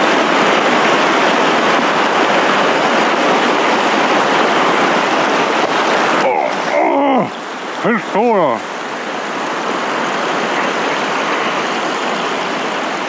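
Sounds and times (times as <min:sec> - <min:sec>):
river rushing over rocks: 0:00.0 - 0:13.0.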